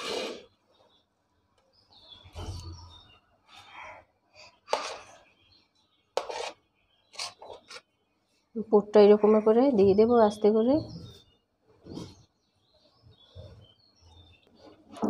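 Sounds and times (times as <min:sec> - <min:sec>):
spoon scraping a ceramic plate: 0:04.7 - 0:05.1, 0:06.2 - 0:07.9.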